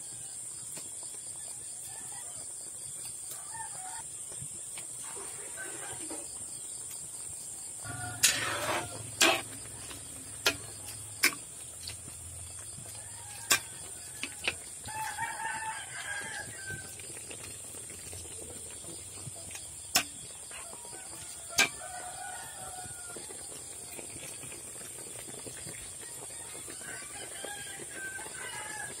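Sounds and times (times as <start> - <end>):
rooster crowing: 1.4 - 2.5, 3.4 - 4.1, 5.2 - 6.4, 7.8 - 10.8, 12.6 - 17.1, 20.5 - 23.7, 25.9 - 29.0.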